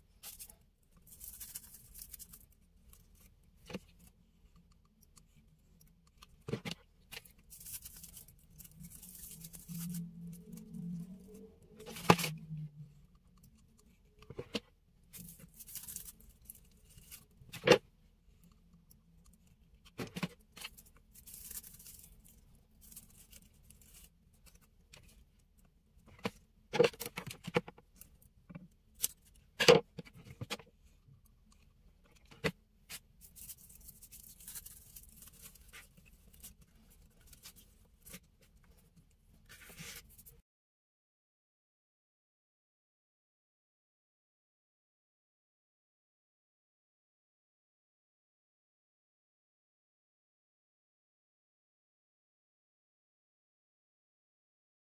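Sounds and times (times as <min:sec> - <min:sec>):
paper rustling and crinkling: 0:00.1 - 0:03.9, 0:06.5 - 0:10.7, 0:14.4 - 0:17.8, 0:19.8 - 0:25.2, 0:32.2 - 0:40.3.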